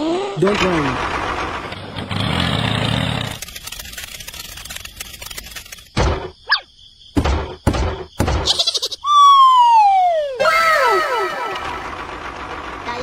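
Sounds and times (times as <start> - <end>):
tractor engine rumble: 0.4 - 5.9, 11.0 - 13.0
rough texture noise: 2.0 - 5.9
squeaky whistle rising and falling: 9.0 - 11.8.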